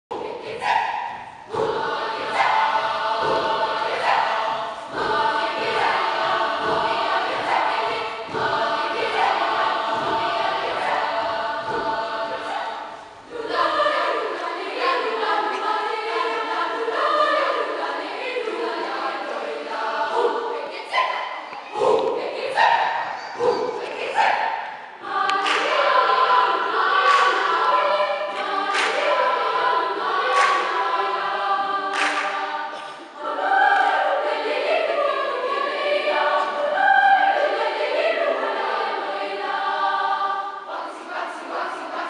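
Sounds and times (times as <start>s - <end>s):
children's choir singing: 0.1s - 42.0s.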